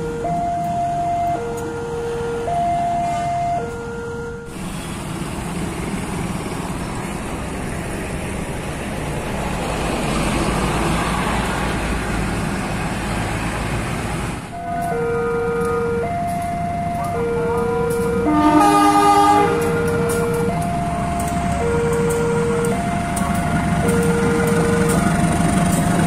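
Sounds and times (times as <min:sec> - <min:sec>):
two-tone level crossing alarm: 0:00.0 - 0:04.6, 0:14.5 - 0:26.0
bus passing by: 0:00.0 - 0:26.0.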